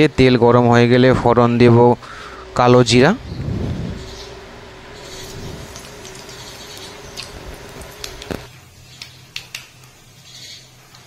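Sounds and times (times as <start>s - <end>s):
seeds sizzling in hot oil: 4.1s - 11.0s.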